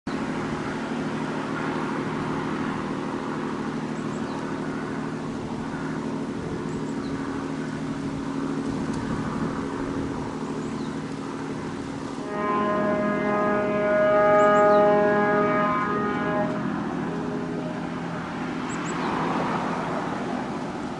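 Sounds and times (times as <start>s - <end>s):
engine drone: 0.1s - 20.9s
rushing noise: 12.2s - 20.9s.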